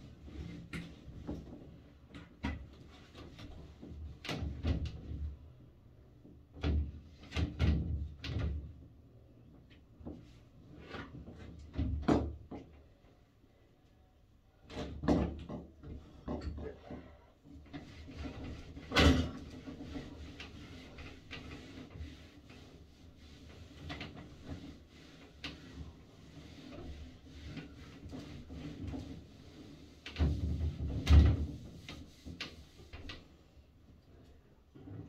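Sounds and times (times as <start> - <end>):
knocks and thumps in a bathroom: 0.3 - 5.4, 6.3 - 8.8, 11.0 - 12.9, 14.7 - 33.3.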